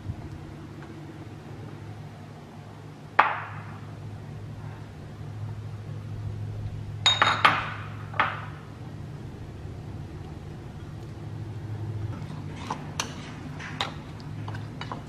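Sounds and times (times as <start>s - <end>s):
low steady hum: 0.0s - 15.0s
bowls clinking: 7.0s - 8.6s.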